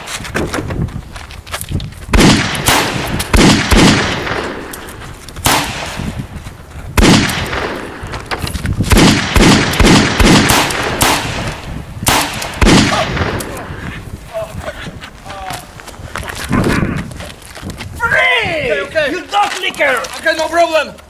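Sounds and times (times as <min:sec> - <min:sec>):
gunshots: 0:02.1 - 0:06.2, 0:07.0 - 0:08.1, 0:08.9 - 0:13.8.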